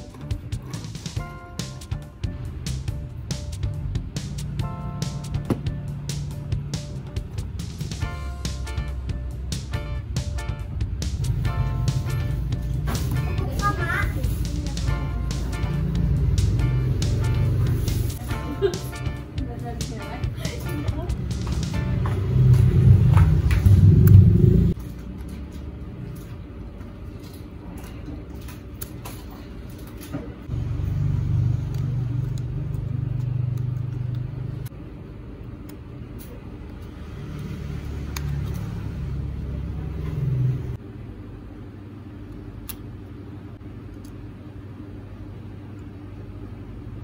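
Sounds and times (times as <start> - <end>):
low rumble: 20.9 - 24.8.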